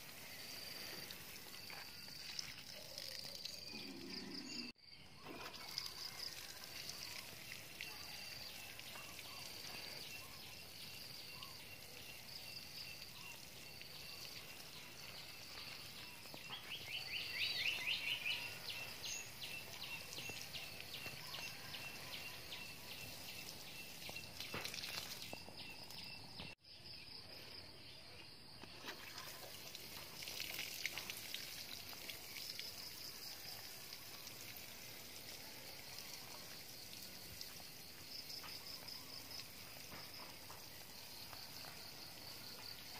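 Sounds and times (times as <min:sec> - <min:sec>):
watering can spray on soil: 0:00.0 - 0:03.8, 0:05.3 - 0:25.5, 0:28.7 - 0:38.6
insects chirping: 0:00.0 - 0:42.9.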